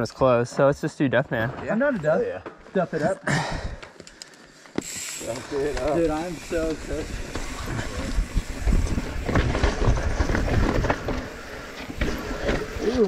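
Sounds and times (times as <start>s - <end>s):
bike tyres rolling over dirt: 3.4s - 13.0s
bike knocking and rattling: 3.5s - 13.0s.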